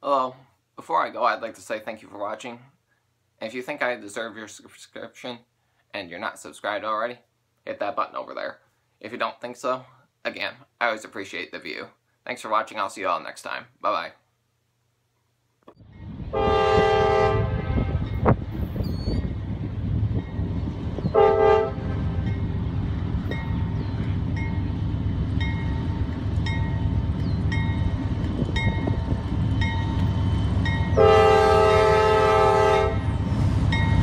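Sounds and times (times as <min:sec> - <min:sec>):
train rumbling past: 0:15.8 - 0:34.0
diesel locomotive horn blasts: 0:16.3 - 0:18.4, 0:21.0 - 0:22.4, 0:30.8 - 0:33.2
crossing bell dinging: 0:22.2 - 0:22.6, 0:23.3 - 0:24.8, 0:25.4 - 0:28.0, 0:28.6 - 0:31.1.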